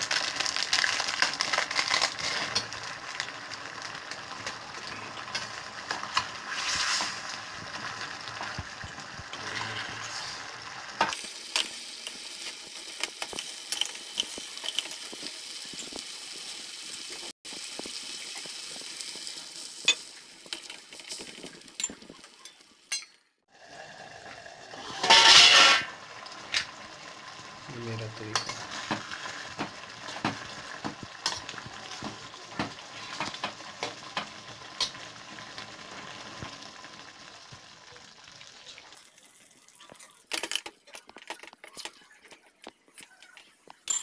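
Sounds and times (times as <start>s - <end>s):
pot simmering: 0.0s - 43.8s
spoon scraping and clinking pot: 24.9s - 25.9s.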